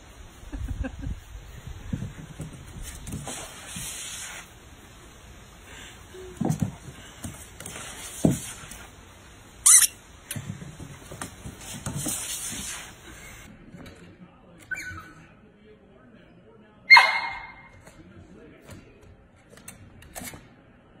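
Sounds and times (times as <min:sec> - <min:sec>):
high squeaks on plastic slide: 0:09.6 - 0:10.0.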